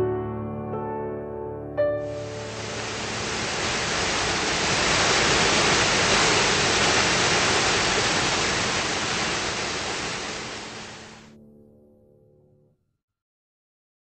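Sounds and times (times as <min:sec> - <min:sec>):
small waterfall splashing over rocks: 0:02.1 - 0:11.3.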